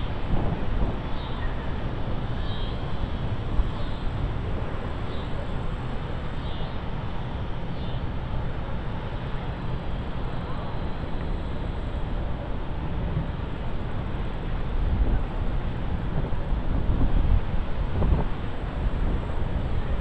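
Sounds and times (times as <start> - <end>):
wind buffeting microphone: 0.0 - 6.3, 12.7 - 20.0.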